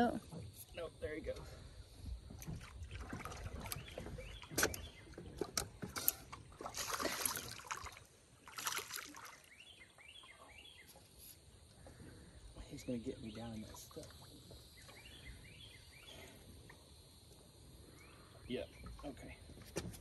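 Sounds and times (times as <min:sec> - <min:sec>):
water lapping at boat: 0:00.0 - 0:20.0
hissing splashes: 0:05.8 - 0:09.6, 0:11.9 - 0:19.5.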